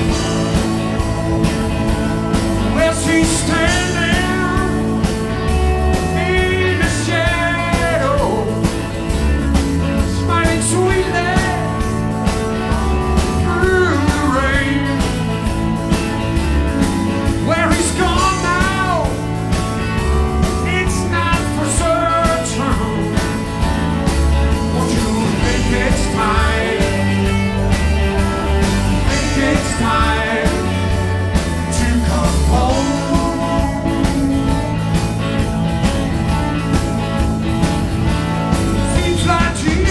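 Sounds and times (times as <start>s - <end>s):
bass guitar: 0.0s - 39.9s
electric guitars: 0.0s - 39.9s
steady drum beat: 0.0s - 39.9s
male lead vocal: 2.6s - 8.9s, 9.8s - 15.4s, 17.4s - 19.4s, 20.4s - 23.7s, 24.4s - 35.0s, 38.7s - 39.9s.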